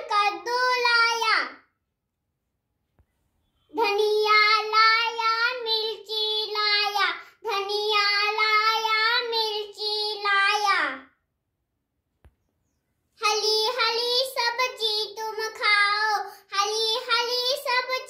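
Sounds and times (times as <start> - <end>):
boy singing unaccompanied: 3.7 - 11.0, 13.3 - 18.0.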